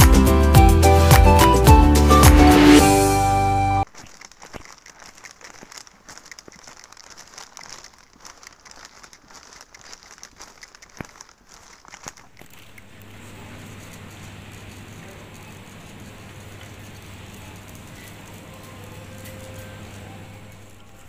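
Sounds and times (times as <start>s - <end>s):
footsteps on stone paving: 3.8s - 20.9s
paper bag rustling: 3.8s - 21.0s.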